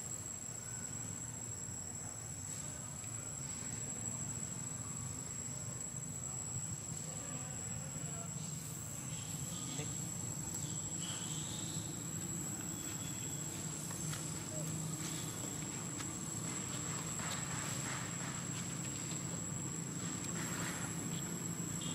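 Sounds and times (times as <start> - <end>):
insects droning: 0.0 - 21.9
faint high squeaks: 12.6 - 15.5.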